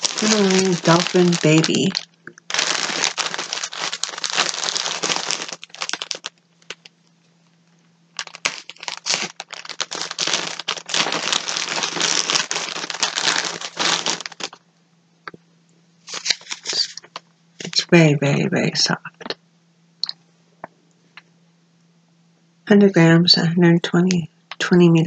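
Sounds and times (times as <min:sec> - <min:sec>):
packaging crinkling: 0:00.0 - 0:07.1, 0:08.1 - 0:14.6, 0:16.1 - 0:17.8.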